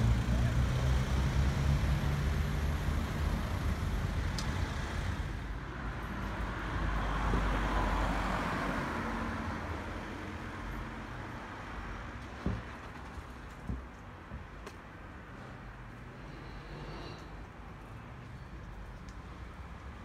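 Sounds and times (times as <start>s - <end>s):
vehicle passing by: 0.0s - 5.4s
vehicle engine hum: 0.0s - 8.7s.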